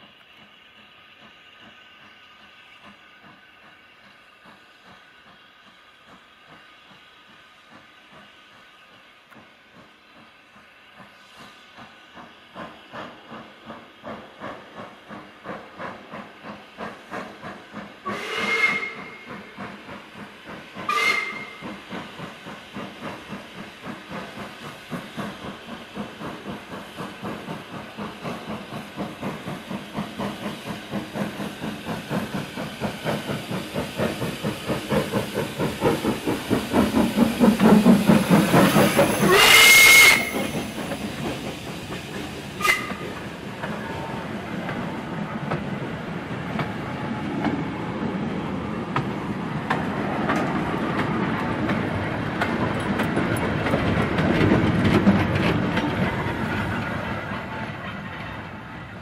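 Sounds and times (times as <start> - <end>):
steam hissing: 0.0 - 59.0
steam locomotive exhaust beating: 0.0 - 59.0
train wagons rolling past: 0.0 - 59.0
steam whistle: 18.0 - 19.5, 20.8 - 21.7, 39.2 - 40.5, 42.6 - 43.0.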